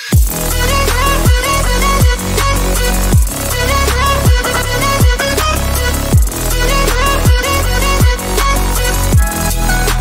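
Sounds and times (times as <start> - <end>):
electronic music: 0.0 - 10.0
deep kick drum: 0.2 - 2.4, 3.1 - 5.5, 6.1 - 6.5, 7.2 - 8.2, 9.1 - 9.4
sustained synth notes: 0.5 - 9.3.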